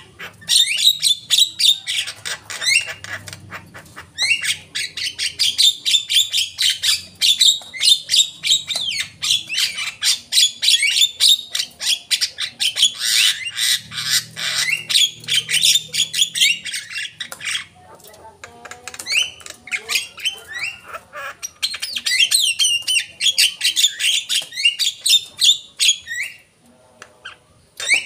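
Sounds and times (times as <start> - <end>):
bird chattering and whistling: 0.0 - 17.8, 18.6 - 26.5, 27.2 - 28.0.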